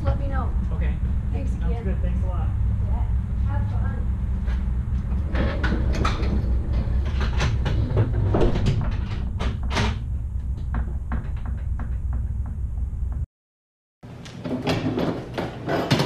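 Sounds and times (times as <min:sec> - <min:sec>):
steady low rumble: 0:00.0 - 0:13.3
trailer ramp door clanking: 0:05.0 - 0:12.4.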